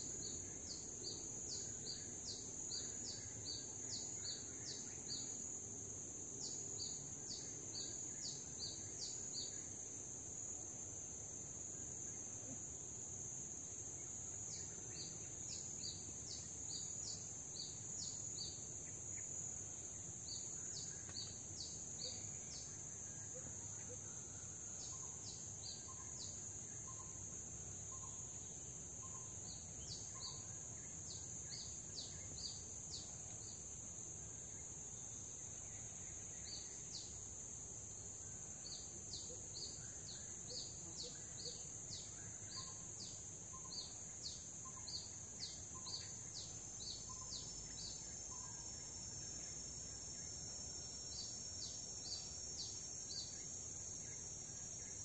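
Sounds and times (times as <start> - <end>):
high-pitched insect drone: 37.9 - 55.0.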